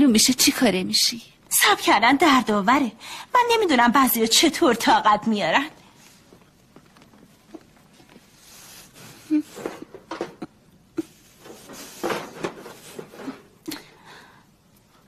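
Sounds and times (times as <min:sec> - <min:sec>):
stove door and pans clattering: 0:11.4 - 0:13.6.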